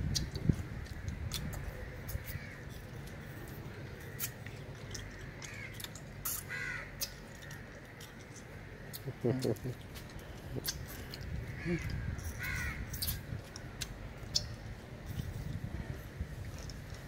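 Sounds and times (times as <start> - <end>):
crows cawing: 1.7 - 2.7, 5.0 - 5.8, 6.5 - 7.9, 11.4 - 13.0.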